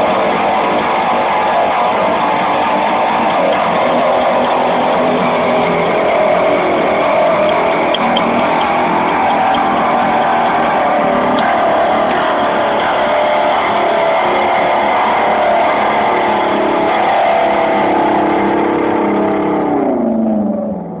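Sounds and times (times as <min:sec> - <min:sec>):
string instrument droning: 0:00.0 - 0:21.0.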